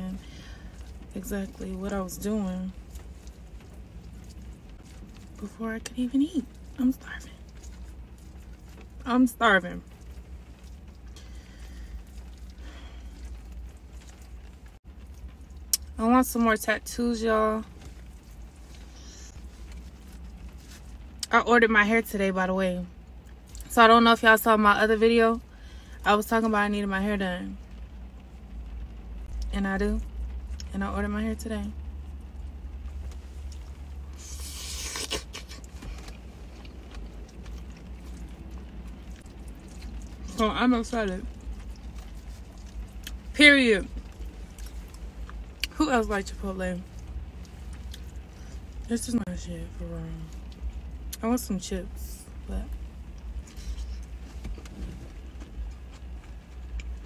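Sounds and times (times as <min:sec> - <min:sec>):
steady low hum: 0:00.0 - 0:57.0
chewing: 0:02.7 - 0:09.1, 0:09.8 - 0:15.9, 0:32.9 - 0:43.3, 0:43.9 - 0:45.8, 0:46.8 - 0:48.9, 0:52.7 - 0:57.0.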